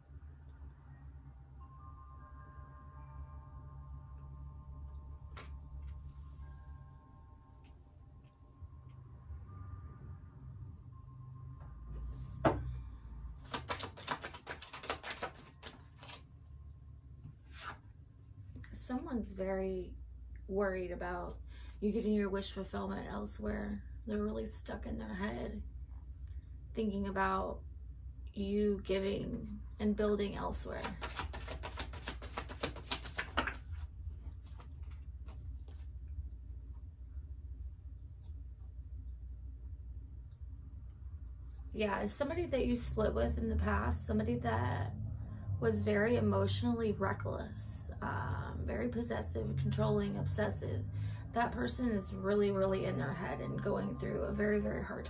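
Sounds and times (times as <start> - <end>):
low steady hum: 0.0 - 55.0
cards shuffling and snapping: 13.4 - 16.2, 30.7 - 35.8
cards tapped on surface: 13.4 - 16.2, 30.8 - 33.8.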